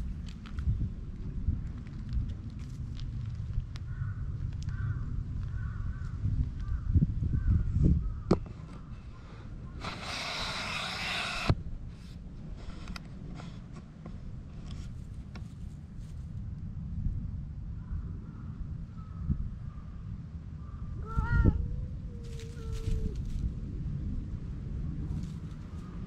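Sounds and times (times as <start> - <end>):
low wind rumble on microphone: 0.0 - 26.0
loud hiss: 9.8 - 11.6.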